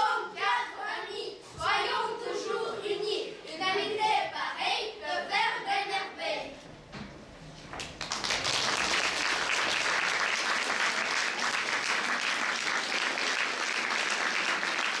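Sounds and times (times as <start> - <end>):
audience applauding: 7.8 - 15.0.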